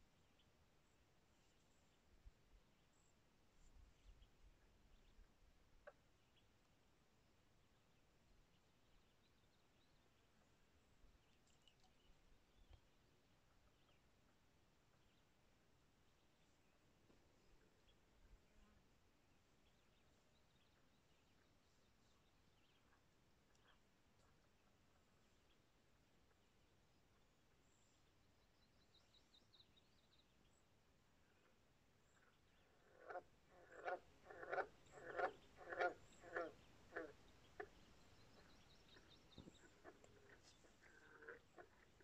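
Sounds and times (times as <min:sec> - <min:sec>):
frog croaking: 0:32.7 - 0:37.8, 0:38.4 - 0:42.0.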